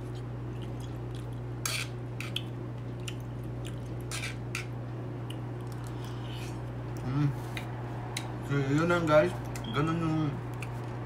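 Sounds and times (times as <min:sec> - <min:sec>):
steady low hum: 0:00.0 - 0:11.0
fork scraping a plate: 0:01.6 - 0:02.4, 0:04.1 - 0:04.7.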